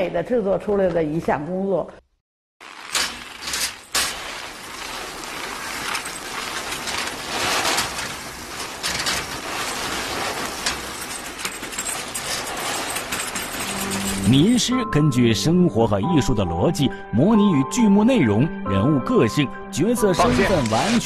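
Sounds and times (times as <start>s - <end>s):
cloth bundle squeezed crunching: 2.6s - 13.0s.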